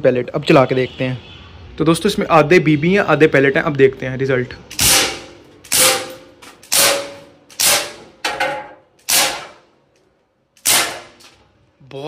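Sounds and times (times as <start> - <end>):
air revolver shots: 4.7 - 8.2, 9.0 - 9.7, 10.6 - 11.2.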